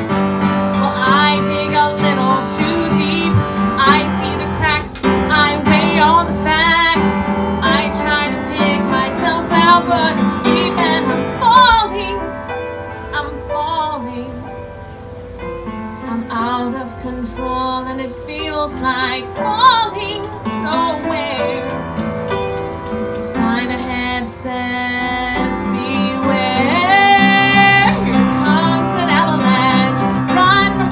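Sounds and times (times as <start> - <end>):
woman singing with vibrato: 0.0 - 14.6, 15.9 - 22.0, 23.2 - 30.9
upright piano: 0.0 - 30.9.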